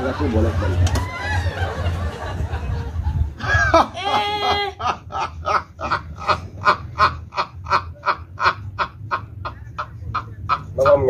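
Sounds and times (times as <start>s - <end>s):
man laughing hard: 3.4s - 11.0s.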